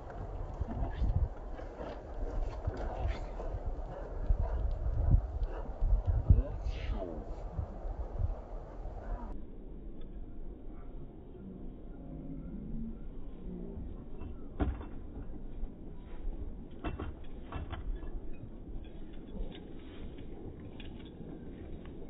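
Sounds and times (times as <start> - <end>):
steady low rumble: 0.0 - 17.4.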